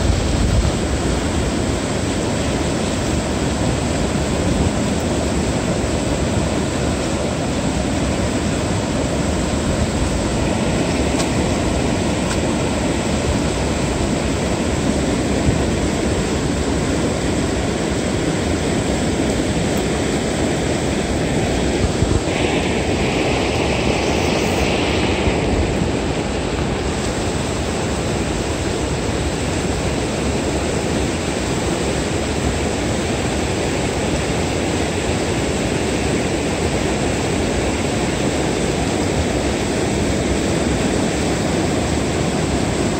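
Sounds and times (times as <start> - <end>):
river water pouring over weir: 0.0 - 42.9
bright hiss: 21.7 - 28.3.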